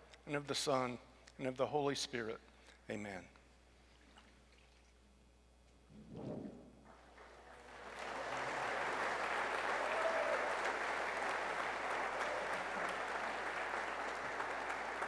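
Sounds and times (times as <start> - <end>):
congregation applauding: 7.0 - 15.0.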